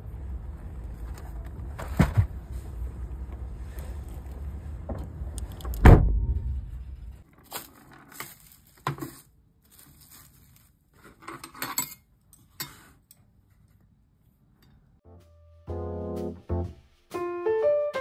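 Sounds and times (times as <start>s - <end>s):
low outdoor rumble: 0.0s - 7.2s
heavy thump: 5.8s - 7.2s
plastic bag crinkling: 7.3s - 10.9s.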